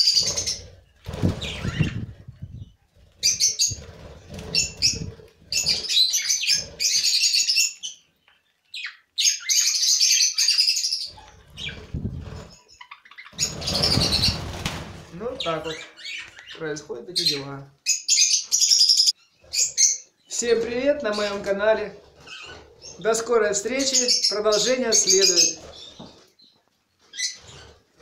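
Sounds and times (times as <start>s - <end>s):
budgerigars chirping: 0.0s - 0.7s, 3.2s - 8.0s, 8.7s - 11.9s, 12.5s - 14.4s, 15.3s - 26.1s
wings fluttering: 0.0s - 7.4s, 11.2s - 12.7s, 13.3s - 15.4s.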